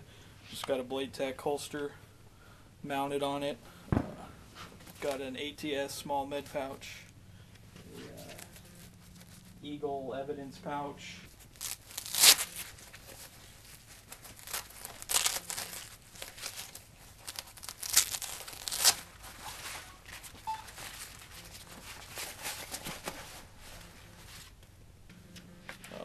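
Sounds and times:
nylon belt rustling and crinkling: 8.0 - 9.6, 11.3 - 24.6.

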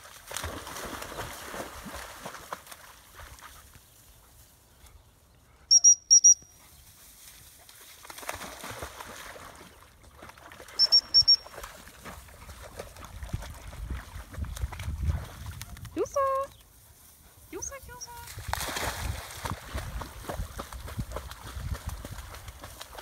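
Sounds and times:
dog splashing in water: 0.0 - 3.6, 7.6 - 15.8, 18.3 - 23.0
dog whistle pips: 5.7 - 6.5, 10.8 - 11.6.

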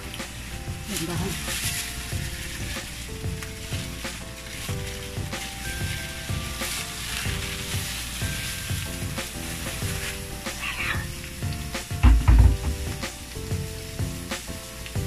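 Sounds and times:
meat sizzling in hot oil: 0.0 - 15.0
loud dull thumps: 11.9 - 13.1.

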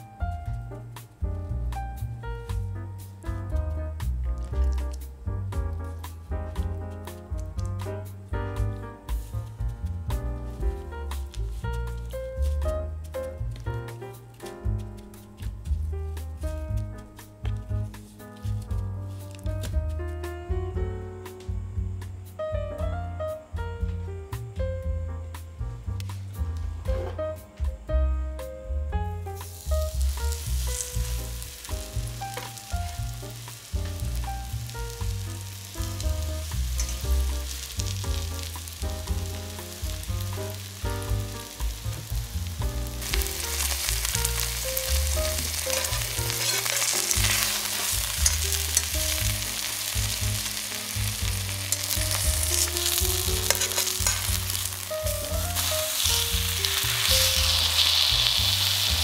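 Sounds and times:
background music with bass line: 0.0 - 59.0
chicken sizzling in oil: 29.4 - 59.0.

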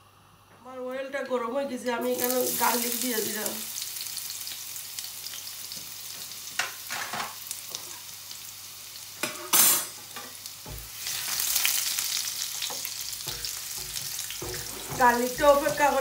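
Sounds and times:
garlic sizzling in oil: 1.8 - 16.0
spatula stirring: 12.6 - 16.0.

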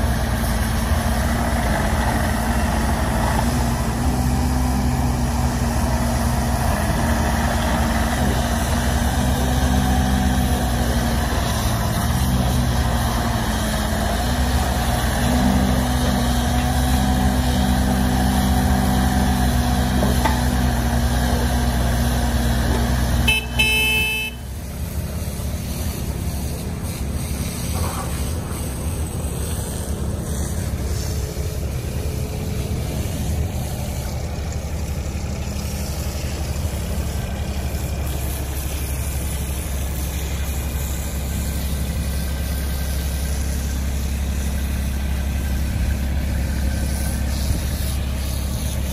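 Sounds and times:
excavator diesel engine running: 0.0 - 48.9
short horn toot: 23.2 - 24.6.

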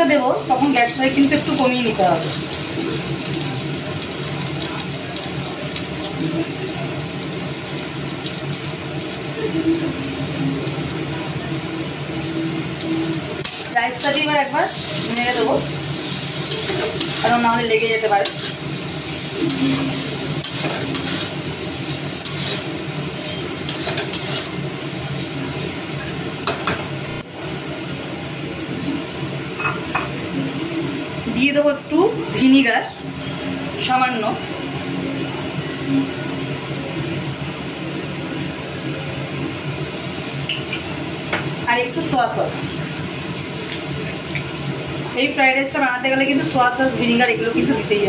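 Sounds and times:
low mechanical hum: 0.0 - 48.0
spatula scraping a wok: 18.2 - 24.6.

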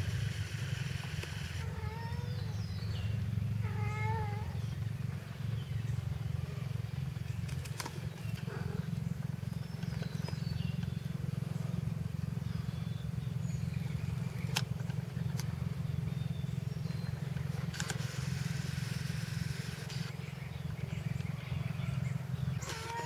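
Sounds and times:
motor running with low drone: 0.0 - 23.0
sharp clicks: 0.1 - 1.7, 7.4 - 8.5, 14.4 - 15.6, 17.3 - 20.2, 22.6 - 23.0.

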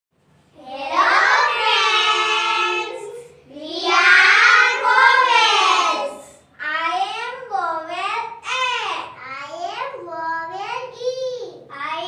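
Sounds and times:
girls singing together: 0.8 - 6.3.

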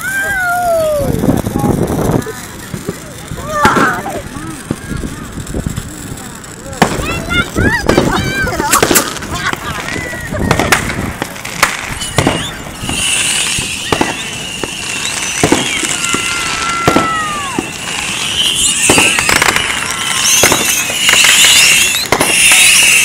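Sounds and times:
crackling hissing sparks: 0.0 - 23.0
fireworks bangs and pops: 0.0 - 23.0
firework whistle dropping in pitch: 11.8 - 23.0.

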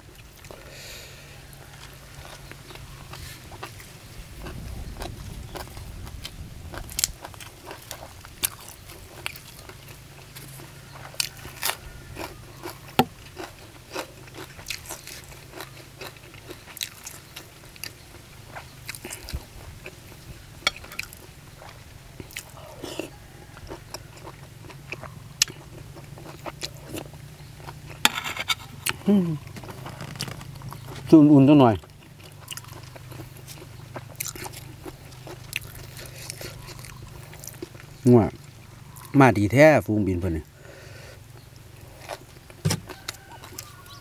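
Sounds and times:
chewing crunchy food: 0.0 - 39.4, 40.2 - 44.0.

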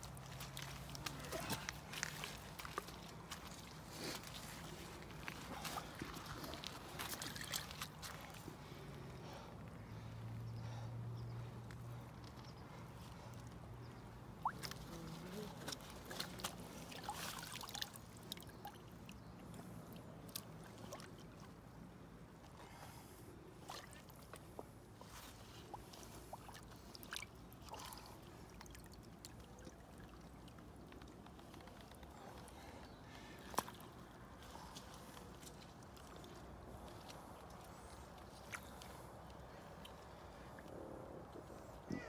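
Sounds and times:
water sloshing and dripping: 0.0 - 8.8, 14.3 - 21.8, 23.6 - 41.6
small splashes: 4.3 - 8.5, 14.4 - 19.2, 25.5 - 32.5.

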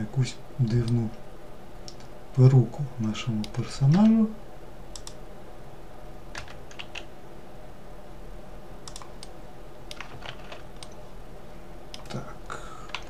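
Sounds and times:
low steady hum: 0.0 - 13.0
keyboard and mouse clicking: 1.8 - 2.1, 4.9 - 5.2, 8.8 - 11.0, 11.9 - 12.2.

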